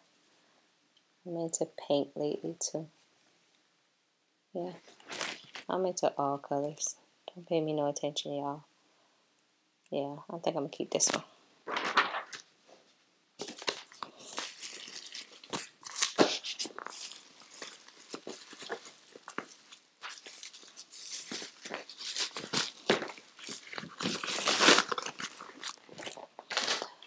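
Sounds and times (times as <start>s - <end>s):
bubble wrap crinkling: 4.8s - 5.7s, 13.4s - 27.0s.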